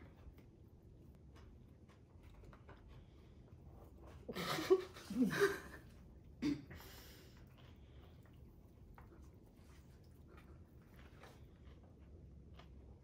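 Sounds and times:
women laughing: 0:04.3 - 0:05.9.

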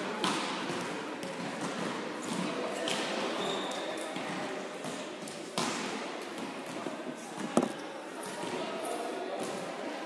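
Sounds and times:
volleyballs bouncing and hit: 0:00.1 - 0:03.2, 0:04.2 - 0:07.8.

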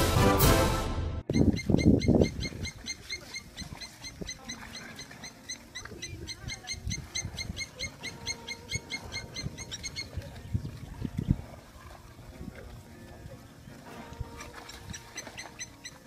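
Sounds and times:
high chirping call: 0:01.3 - 0:10.8, 0:14.7 - 0:16.0.

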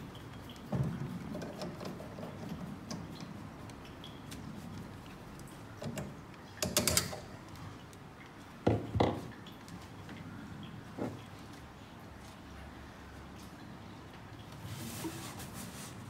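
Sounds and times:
clicks and knocks on faucet fittings: 0:00.1 - 0:04.4, 0:05.0 - 0:09.5.

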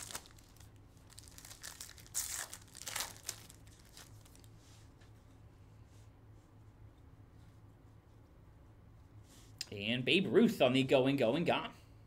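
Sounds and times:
plastic crinkling: 0:00.0 - 0:04.5.

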